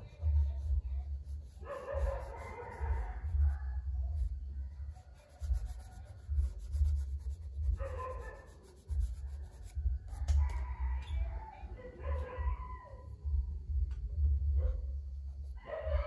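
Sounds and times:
charcoal rubbing on paper: 0.0 - 10.3.

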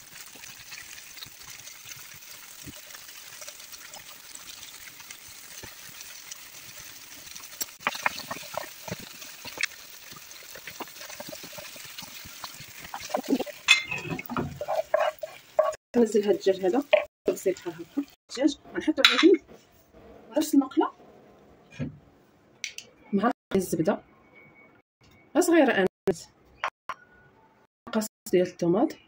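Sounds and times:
chicken sizzling in hot oil: 0.0 - 18.2
utensils scraping a pan: 10.4 - 15.8.

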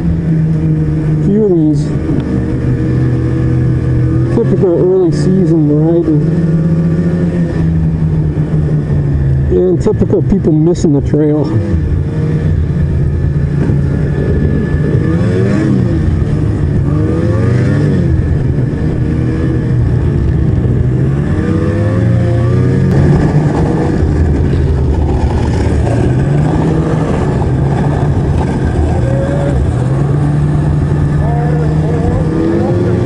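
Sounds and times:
snowmobile engine revving: 0.0 - 33.0.

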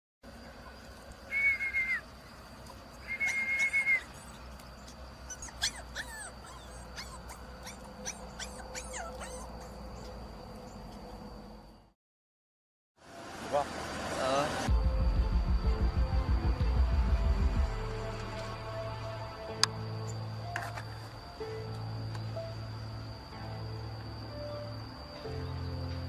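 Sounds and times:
puppy whining: 3.1 - 10.2
puppy yelping: 3.1 - 10.2.

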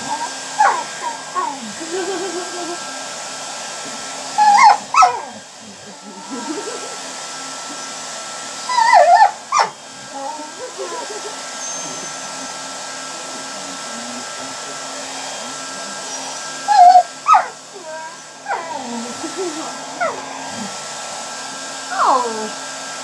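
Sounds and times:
puppy whining and yelping: 0.0 - 2.8, 4.3 - 5.6, 8.6 - 12.4, 16.0 - 19.1
hair dryer running: 0.0 - 23.0.

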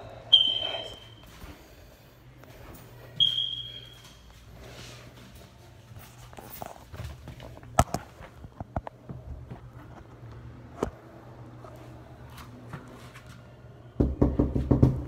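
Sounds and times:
soft footsteps: 2.4 - 10.3.

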